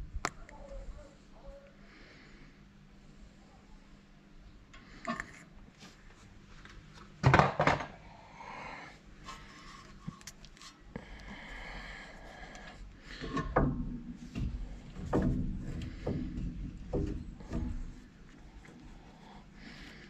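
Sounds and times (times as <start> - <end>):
metal clunks and knocks: 7.2 - 7.9, 13.1 - 18.3.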